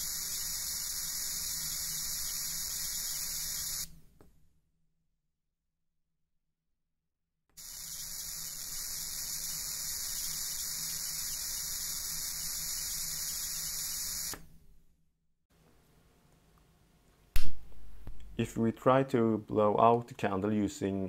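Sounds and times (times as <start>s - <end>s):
high-pitched corona discharge hiss: 0.0s - 3.9s, 7.6s - 14.4s.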